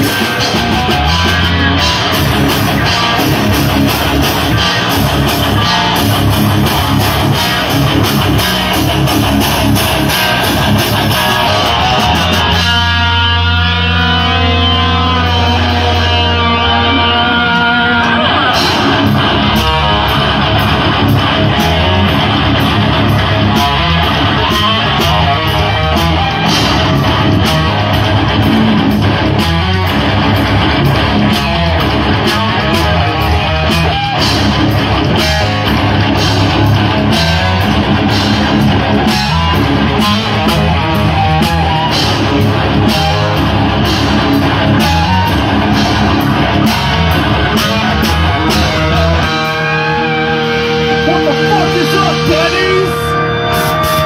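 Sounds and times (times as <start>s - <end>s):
live metal band: 0.0s - 54.0s
drum and cymbal hits: 17.6s - 49.8s.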